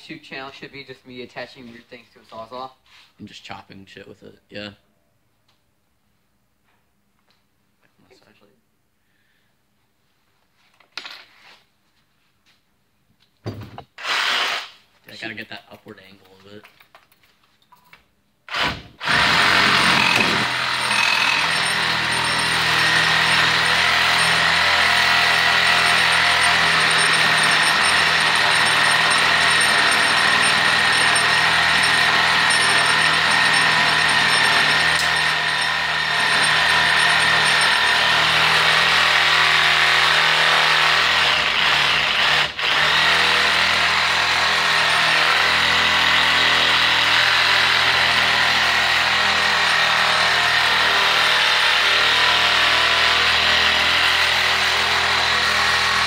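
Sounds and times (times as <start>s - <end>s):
reciprocating saw whining: 19.0s - 38.4s.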